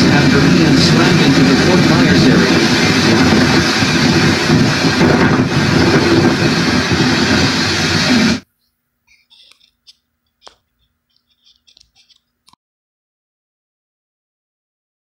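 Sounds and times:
hurricane wind through tv speaker: 0.0 - 8.4.

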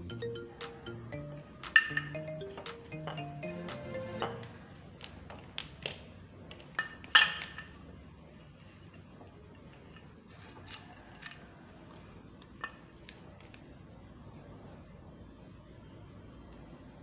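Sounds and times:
metal parts clinking and knocking: 1.6 - 2.2, 5.3 - 7.8.

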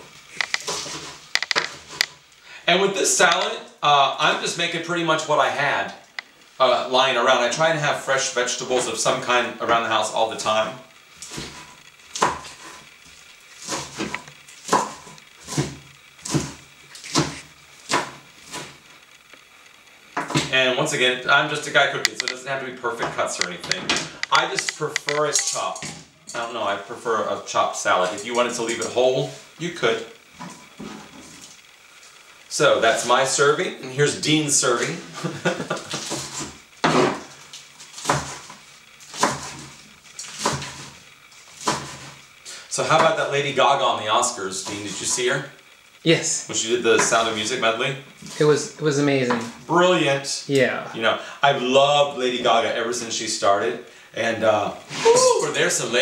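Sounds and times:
knife chopping on plastic board: 12.2 - 12.5, 14.7 - 18.7, 38.0 - 38.4, 39.1 - 39.6, 40.3 - 40.9, 41.6 - 42.1.

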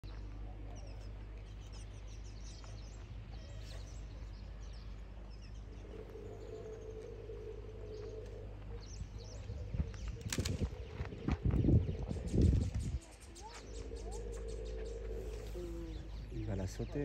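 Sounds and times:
low outdoor background noise: 0.0 - 17.0
mid-pitched hum: 0.0 - 17.0
small birds chirping: 0.0 - 17.0.

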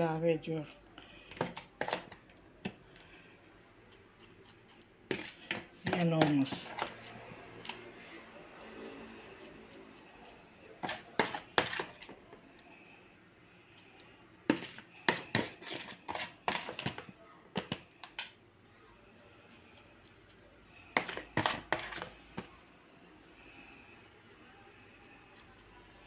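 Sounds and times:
metal spoon scraping a bowl: 1.3 - 2.3, 4.2 - 7.8, 8.6 - 12.1, 14.5 - 17.0, 20.9 - 22.1.

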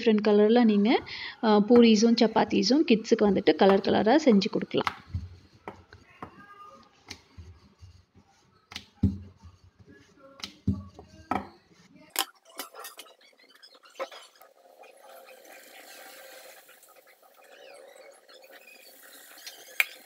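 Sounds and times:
rolling pin knocking on board: 3.6 - 6.4, 10.4 - 11.5
hot oil sizzling: 14.9 - 16.9.

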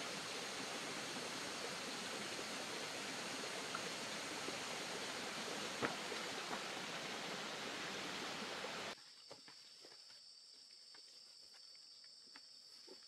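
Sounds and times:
insects trilling: 0.0 - 9.0
running water: 0.0 - 9.0.

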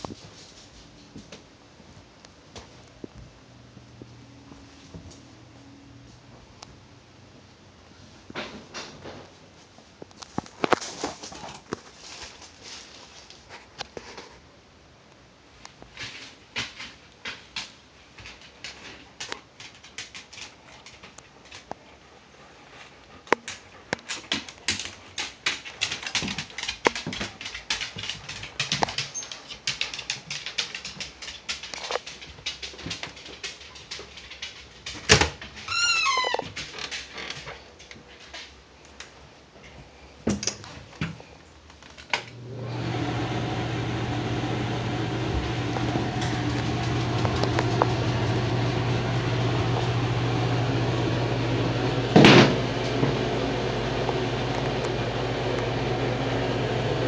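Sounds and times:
rustling through clutter: 0.0 - 3.4, 8.0 - 14.5, 15.6 - 42.1
door hinge creaking: 35.7 - 36.8
exhaust fan humming: 42.3 - 57.0.

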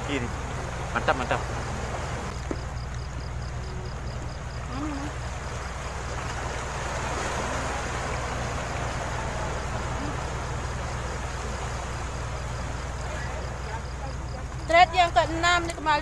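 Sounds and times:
faint high ticking: 0.0 - 16.0
low hum: 0.0 - 16.0
waves breaking on rocky shore: 0.0 - 16.0.

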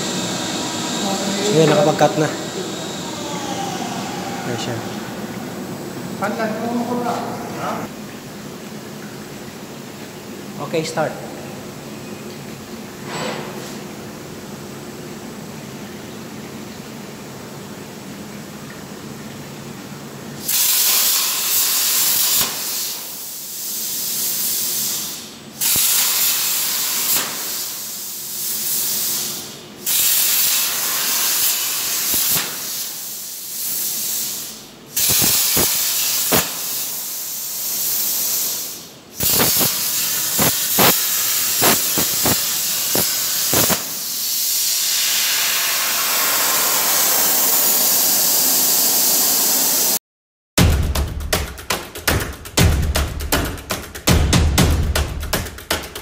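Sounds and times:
plasma cutter arc hissing: 20.4 - 50.0
sharp clicks and pops: 39.2 - 43.9.

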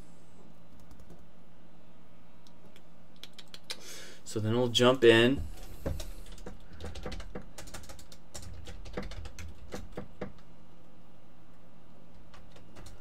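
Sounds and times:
faint low hum: 0.0 - 13.0
keyboard typing: 0.7 - 1.2, 5.6 - 10.5, 12.1 - 13.0.

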